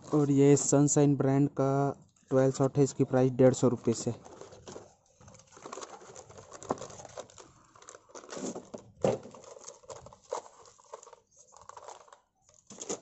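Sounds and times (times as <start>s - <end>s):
cardboard and paper rustling: 0.0s - 0.8s, 3.7s - 13.0s.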